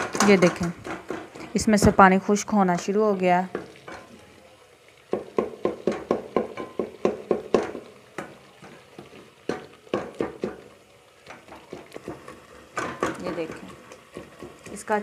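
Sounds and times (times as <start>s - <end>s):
wooden spoon scraping a pot: 11.3s - 15.0s.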